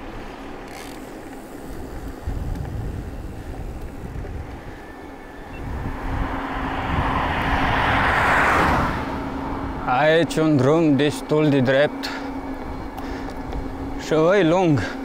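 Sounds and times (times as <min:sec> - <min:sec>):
vehicle engine and tyre noise: 0:00.0 - 0:15.0
wind gusting on microphone: 0:01.8 - 0:10.5.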